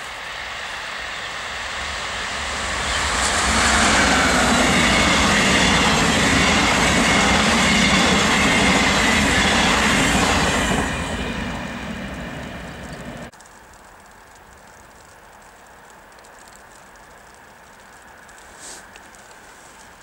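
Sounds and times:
passing train wheels on rails: 0.0s - 13.3s.

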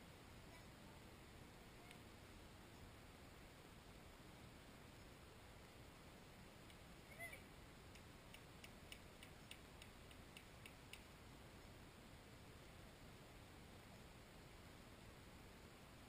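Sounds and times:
faint steady hiss: 0.0s - 16.0s
faint sharp ticks: 6.6s - 6.8s, 7.9s - 11.8s.

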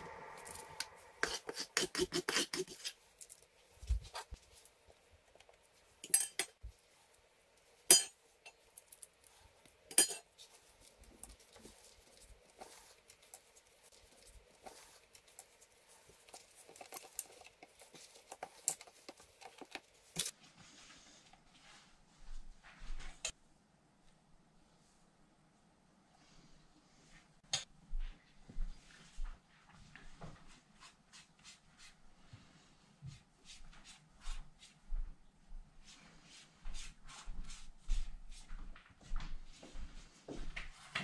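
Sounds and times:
utensil clinking on baking sheet: 6.0s - 6.6s, 7.8s - 9.0s, 9.9s - 10.5s.

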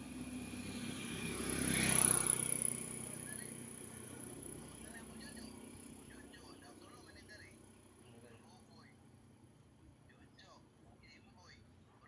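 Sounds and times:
motor vehicle passing by: 0.0s - 8.6s.

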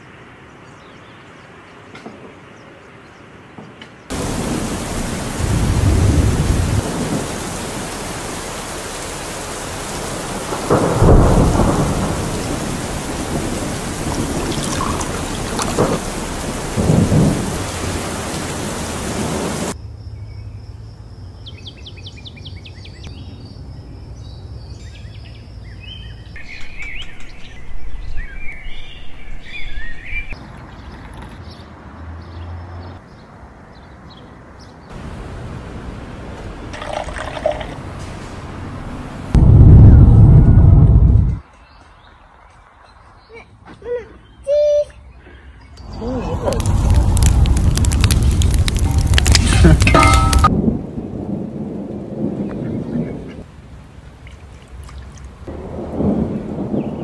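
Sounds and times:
birds chirping: 0.0s - 35.3s, 41.4s - 50.5s, 52.2s - 53.5s
heavy rain: 4.1s - 19.8s, 34.9s - 41.4s, 45.8s - 57.0s
thunder rumbling: 4.1s - 19.8s, 34.9s - 41.4s, 45.9s - 54.2s, 55.4s - 57.0s.

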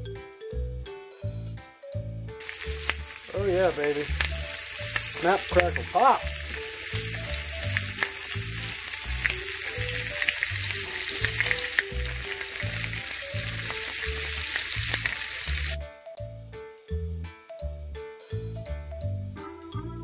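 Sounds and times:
background music with steady beat: 0.0s - 20.0s
meat sizzling in a pan: 2.4s - 15.8s.

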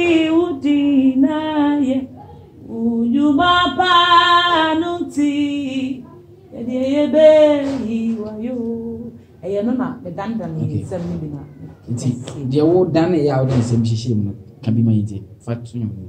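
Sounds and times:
woman singing unaccompanied: 0.0s - 11.5s.

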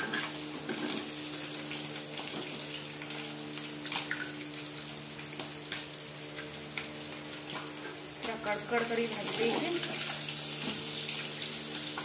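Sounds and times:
fish sizzling in hot oil: 0.0s - 12.0s.

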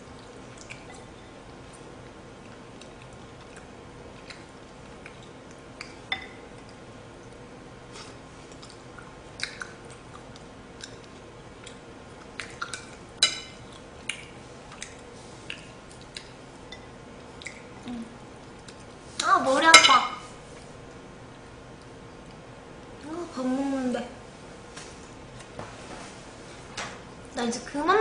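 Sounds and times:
soft chewing: 0.0s - 19.3s, 20.3s - 23.2s.

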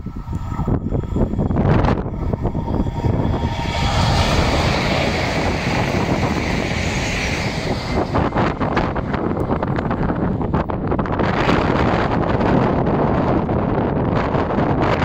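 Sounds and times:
high-speed train rushing past: 0.0s - 15.0s
wind buffeting microphone: 0.0s - 15.0s.

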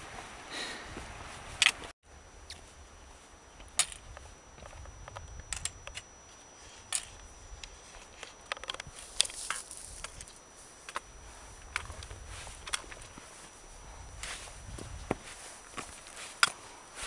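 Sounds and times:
pole tips clicking on rock: 1.6s - 1.9s, 3.6s - 6.1s, 6.9s - 13.2s, 15.8s - 16.6s
footsteps on rock: 8.8s - 16.6s.

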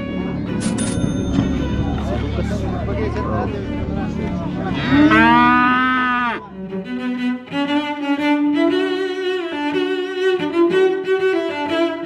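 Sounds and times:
bowed strings music: 0.0s - 12.0s
cow mooing: 4.7s - 6.5s.

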